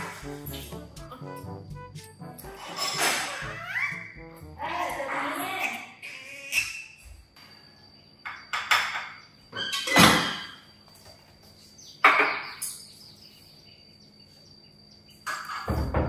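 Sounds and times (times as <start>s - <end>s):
dishes and utensils clattering: 2.5s - 3.6s.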